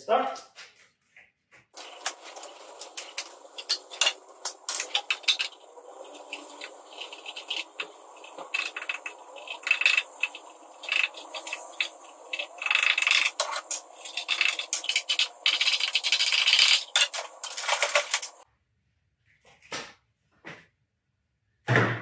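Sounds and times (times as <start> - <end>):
plastic bag crinkling: 1.8 - 18.4.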